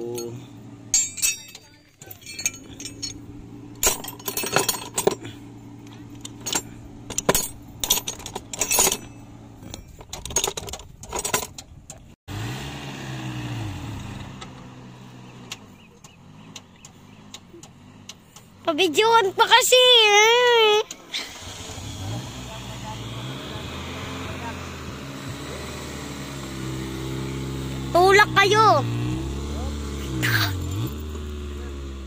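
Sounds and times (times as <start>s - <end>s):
tools clinking in metal toolbox: 0.0s - 11.7s.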